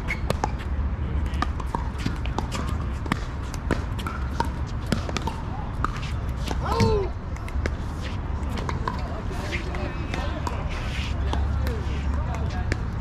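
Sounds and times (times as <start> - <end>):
ball bouncing on court: 0.0 - 7.8, 8.5 - 10.6.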